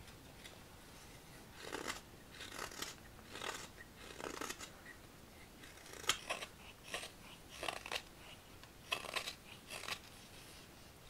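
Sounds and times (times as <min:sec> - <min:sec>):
knife scraping wood: 0:01.6 - 0:04.8, 0:05.6 - 0:08.1, 0:08.9 - 0:10.2.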